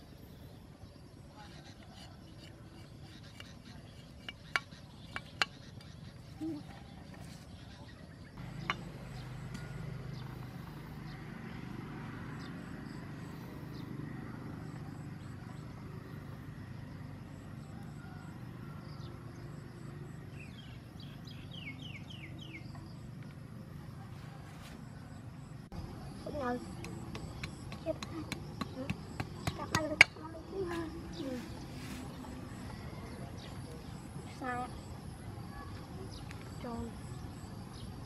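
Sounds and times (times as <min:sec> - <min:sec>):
knife chopping a stick: 0:26.8 - 0:30.2.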